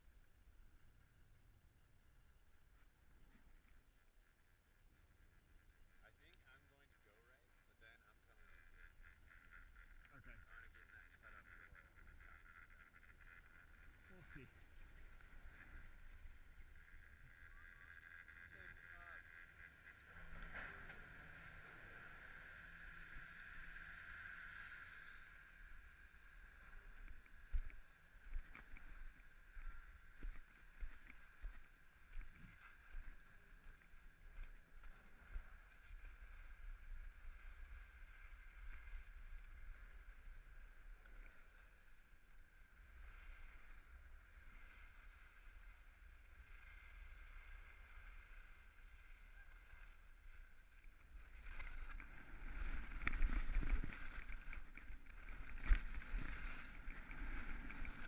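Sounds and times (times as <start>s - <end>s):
skis scraping over snow: 8.4s - 24.0s, 43.2s - 58.0s
wind rumbling on microphone: 46.6s - 58.0s.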